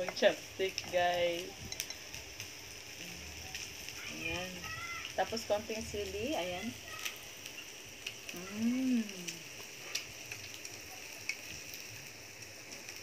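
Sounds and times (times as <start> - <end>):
sizzling hiss: 0.0 - 13.0
woman humming mmm: 8.3 - 9.6.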